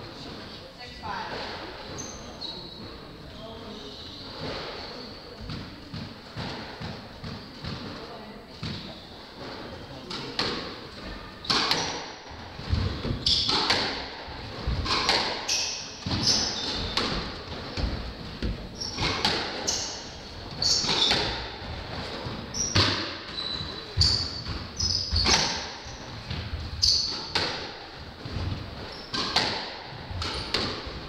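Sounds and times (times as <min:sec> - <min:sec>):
shoes squeaking on wooden floor: 0:01.8 - 0:10.1, 0:10.9 - 0:31.0
squash ball cracking off rackets: 0:11.4 - 0:17.4, 0:27.0 - 0:31.0.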